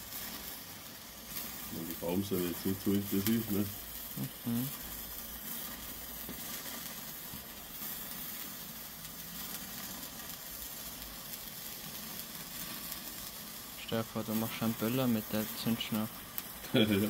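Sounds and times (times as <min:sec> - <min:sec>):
firework stick sizzling: 0:00.0 - 0:17.0.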